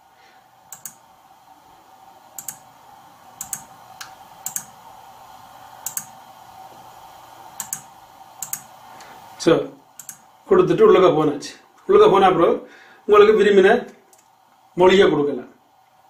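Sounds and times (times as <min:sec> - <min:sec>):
faint steady hum: 0:00.0 - 0:16.0
computer mouse button clicks: 0:02.4 - 0:02.6, 0:03.4 - 0:03.6, 0:04.5 - 0:04.7, 0:05.8 - 0:06.1, 0:07.6 - 0:08.7.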